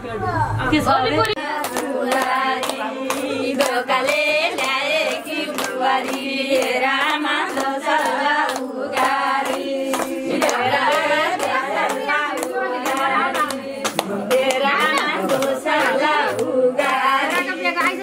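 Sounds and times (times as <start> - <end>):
people singing together: 0.9 - 18.0
rhythmic hand clapping: 1.2 - 18.0.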